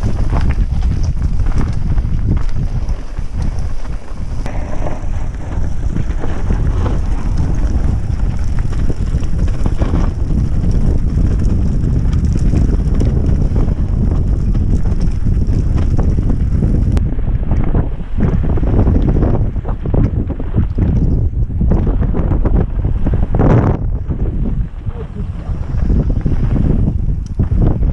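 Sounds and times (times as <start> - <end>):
tyres rumbling on dirt: 0.0 - 17.0
bike clicks and rattles: 0.0 - 17.7, 25.7 - 27.7
wind buffeting microphone: 0.0 - 27.9.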